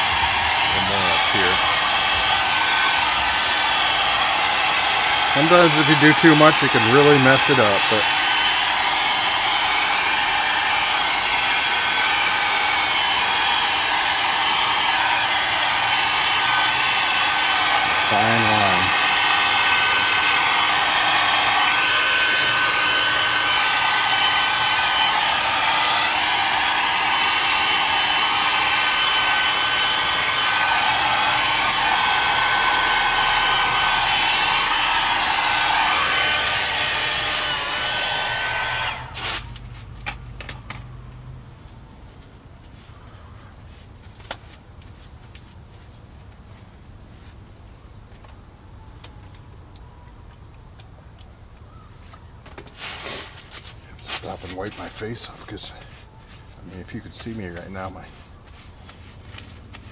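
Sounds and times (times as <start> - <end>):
blow dryer running: 0.0 - 39.6
crickets chirping: 39.3 - 59.9.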